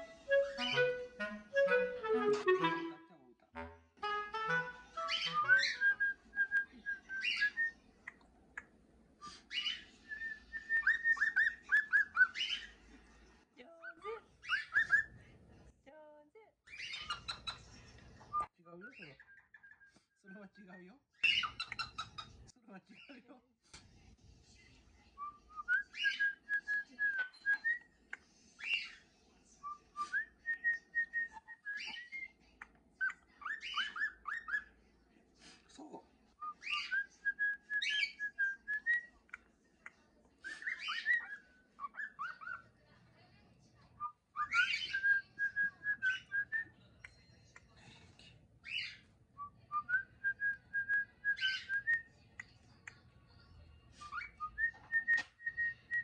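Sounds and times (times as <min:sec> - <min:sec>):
cockatiel whistling song: 0:00.0 - 0:02.7, 0:04.4 - 0:07.8, 0:09.2 - 0:12.7, 0:14.4 - 0:15.1, 0:16.7 - 0:17.6, 0:21.2 - 0:22.3, 0:25.2 - 0:27.9, 0:29.6 - 0:32.3, 0:33.0 - 0:34.7, 0:36.4 - 0:39.1, 0:40.4 - 0:42.6, 0:44.0 - 0:47.2, 0:48.6 - 0:52.1, 0:54.0 - 0:56.0.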